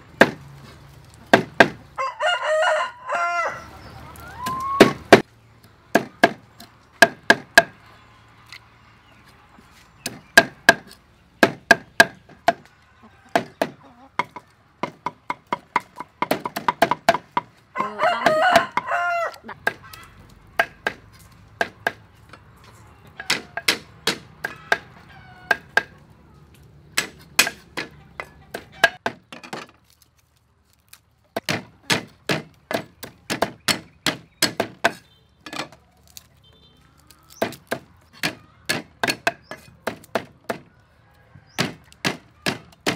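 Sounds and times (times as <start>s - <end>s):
cleaver chopping on wooden block: 0.2s - 0.4s, 1.3s - 1.8s, 5.9s - 6.4s, 7.0s - 7.8s, 10.0s - 12.7s, 13.3s - 18.9s, 20.6s - 22.0s, 23.2s - 24.9s, 27.0s - 29.2s, 31.4s - 35.1s, 37.3s - 40.7s, 41.6s - 42.9s
rooster crowing: 2.0s - 4.9s, 17.7s - 19.5s, 40.7s - 41.6s.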